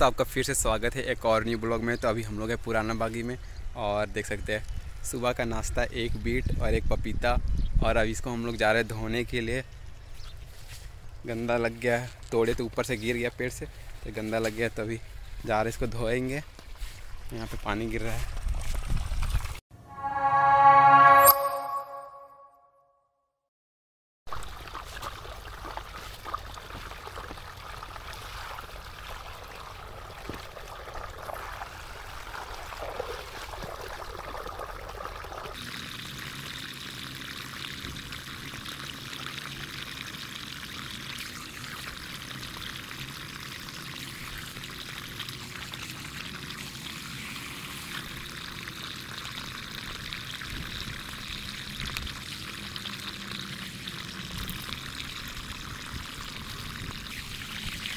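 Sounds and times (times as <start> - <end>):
water pouring into a channel: 24.3 - 57.9.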